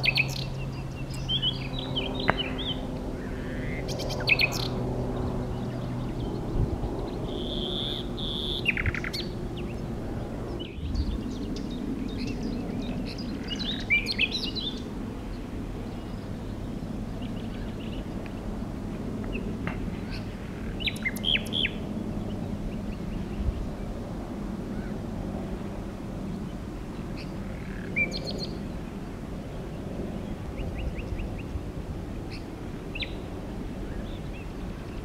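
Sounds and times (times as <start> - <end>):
low steady hum: 0.0 - 35.0
nightingale song: 7.2 - 9.8.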